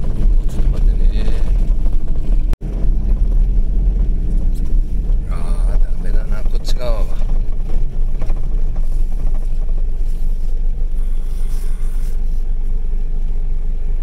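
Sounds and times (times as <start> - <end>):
car road and engine rumble: 0.0 - 14.0.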